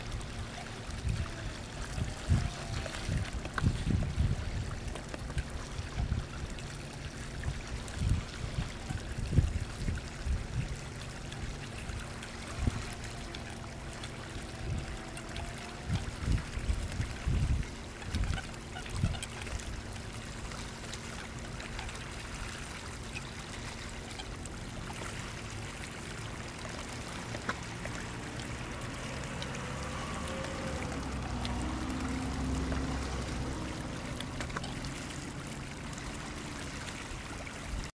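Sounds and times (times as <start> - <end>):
water lapping at shoreline: 0.0 - 37.9.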